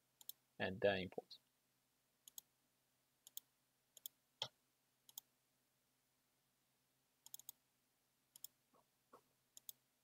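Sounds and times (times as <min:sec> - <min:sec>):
computer mouse clicks: 0:00.2 - 0:00.4, 0:02.2 - 0:02.5, 0:03.2 - 0:05.3, 0:07.2 - 0:07.6, 0:08.3 - 0:08.6, 0:09.6 - 0:09.8.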